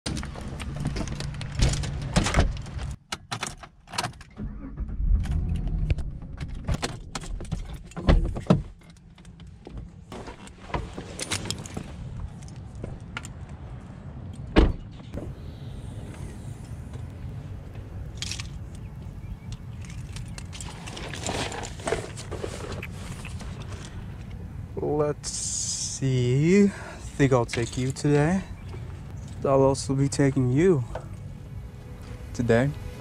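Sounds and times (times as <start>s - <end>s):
doors opening and shutting: 0.1s - 9.4s, 14.4s - 15.4s.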